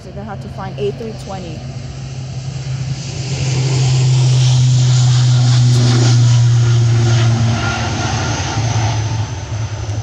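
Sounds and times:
turboprop engines droning: 0.0s - 10.0s.

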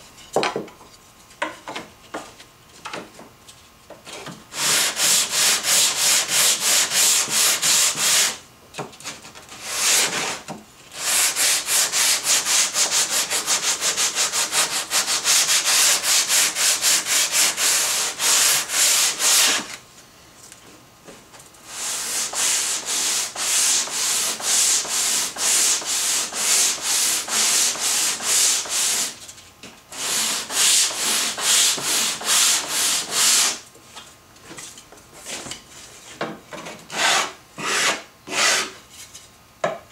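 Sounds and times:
sandpaper rasping on wood: 4.5s - 8.4s, 9.6s - 19.7s, 21.7s - 29.2s, 29.9s - 33.6s, 36.9s - 38.8s.

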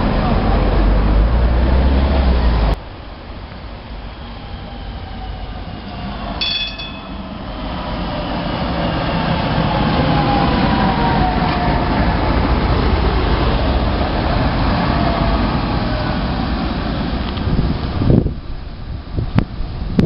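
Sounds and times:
tram wheels rumbling on rails: 0.0s - 20.0s
tram bell ring: 6.4s - 7.6s.

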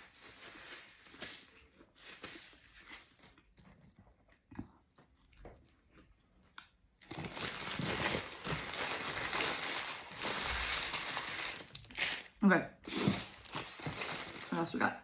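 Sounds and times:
paper wrapper crinkling: 0.0s - 3.6s, 7.0s - 14.9s.

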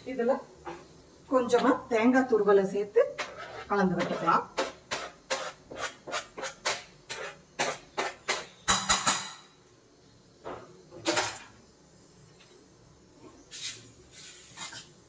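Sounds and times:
spoon stirring in steel pot: 3.0s - 9.0s
knife scraping cutting board: 3.2s - 8.5s.

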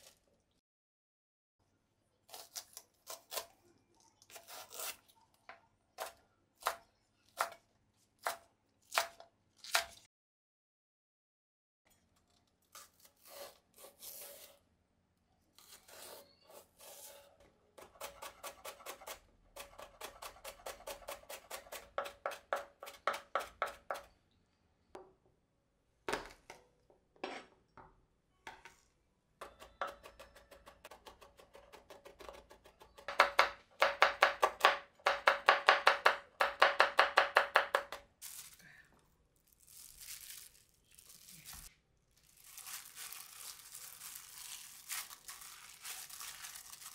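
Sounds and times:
knife chopping on wooden board: 33.1s - 38.0s.

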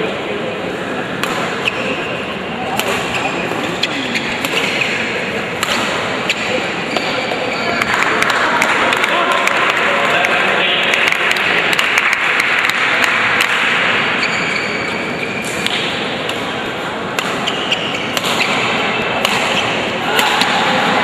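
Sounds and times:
rackets striking shuttlecock: 1.2s - 2.0s, 2.7s - 14.3s, 15.1s - 20.8s
crowd murmuring: 15.9s - 21.0s.

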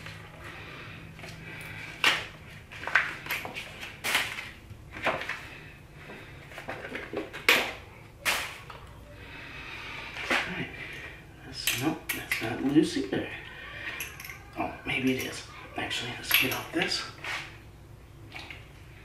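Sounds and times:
low steady hum: 0.0s - 19.0s
bike parts clinking and knocking: 6.6s - 8.9s, 10.9s - 15.4s, 16.2s - 17.0s.

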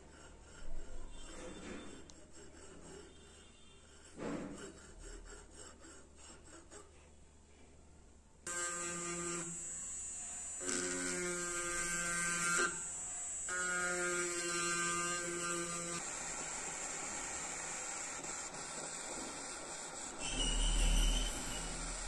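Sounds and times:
piercing saw cutting metal: 8.5s - 22.0s
rotary tool whine: 8.5s - 22.0s.

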